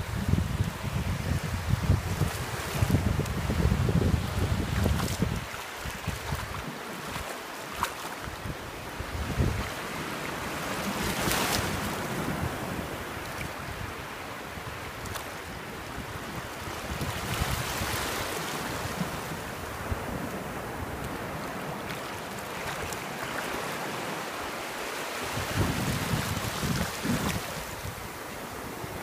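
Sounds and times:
wind buffeting microphone: 0.0 - 7.2, 8.3 - 15.2, 25.3 - 29.0
surf washing over sand: 0.0 - 29.0.

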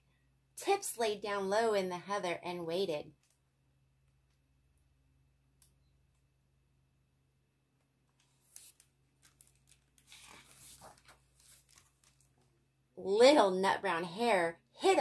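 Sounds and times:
book pages rustling and flipping: 8.1 - 12.6.

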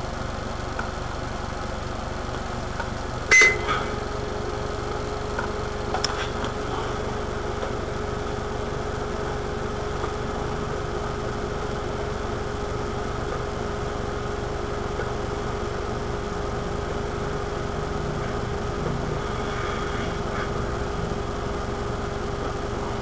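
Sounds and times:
electrical hum and hiss: 0.0 - 23.0
steady low tone: 3.2 - 23.0
short high beep: 3.3 - 4.0.

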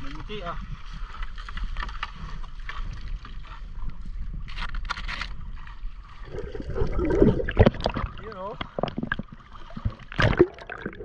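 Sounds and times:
water splashing: 5.5 - 11.0.

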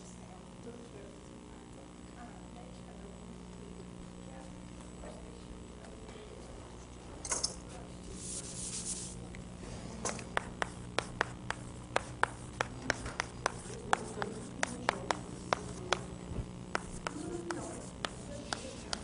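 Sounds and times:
steady low hum: 0.0 - 19.0
rustling scrape: 8.0 - 9.2.

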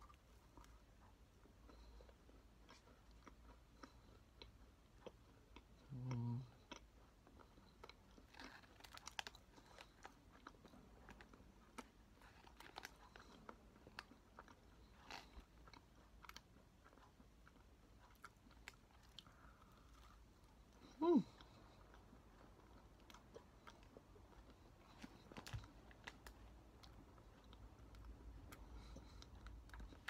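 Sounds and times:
crunchy chewing: 0.0 - 30.0
person humming: 20.9 - 21.4.

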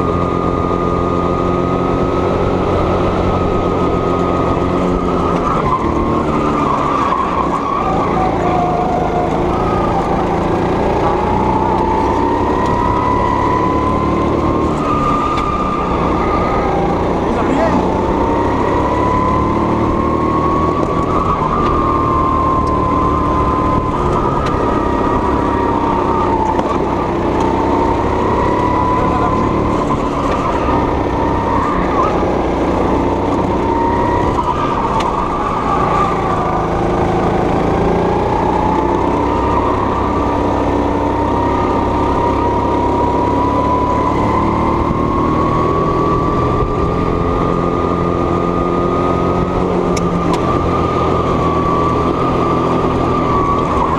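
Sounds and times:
high-pitched kart engine: 0.0 - 53.9.

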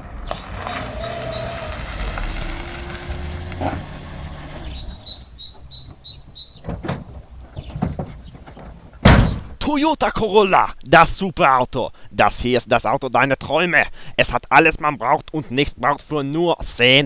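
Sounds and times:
car driving on dirt: 0.0 - 9.1
bird chirping: 0.2 - 9.7.

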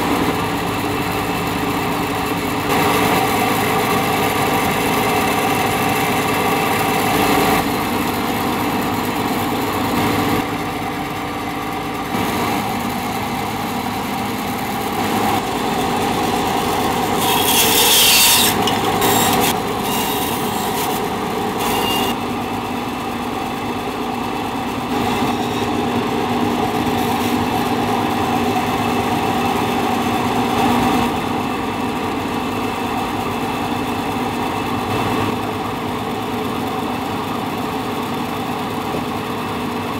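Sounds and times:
band saw cutting wood: 11.9 - 31.2.

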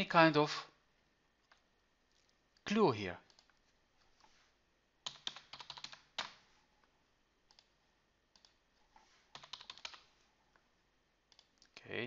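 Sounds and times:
keyboard typing: 3.2 - 3.6, 5.0 - 6.4, 7.5 - 8.6, 9.3 - 10.1, 11.3 - 11.8.

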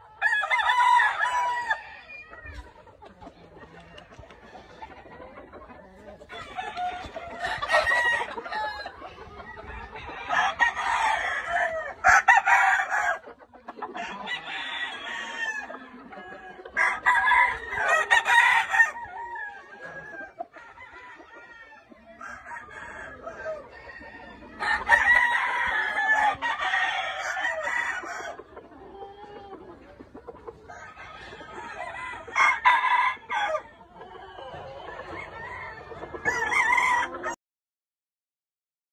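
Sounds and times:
roosters crowing: 0.0 - 2.6, 6.3 - 9.0, 9.8 - 13.3, 13.9 - 28.5, 30.7 - 37.4.

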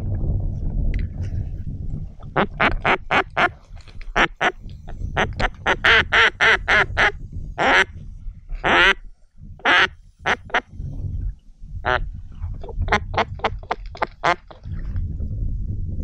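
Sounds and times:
low rumble: 0.0 - 16.0
duck call quacking: 2.3 - 3.5, 4.2 - 4.6, 5.2 - 7.9, 8.6 - 9.0, 9.6 - 10.6.

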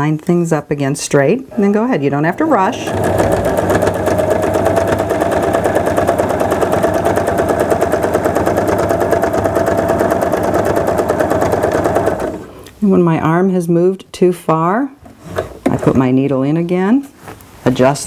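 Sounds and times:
sewing machine stitching: 2.6 - 12.5.

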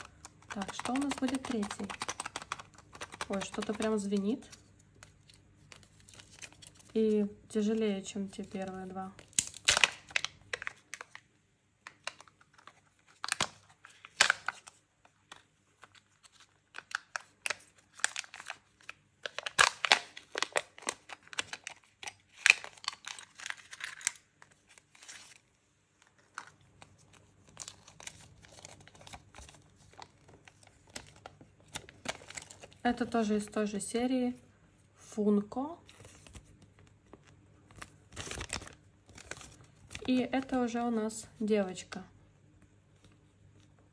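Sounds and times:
plastic capsule clicks: 0.0 - 4.6
paper rustling: 0.0 - 7.0, 12.0 - 32.8, 35.9 - 40.1
foil and plastic crinkling: 0.0 - 7.1, 8.3 - 11.2, 11.8 - 25.4, 26.2 - 33.4, 37.1 - 40.7.

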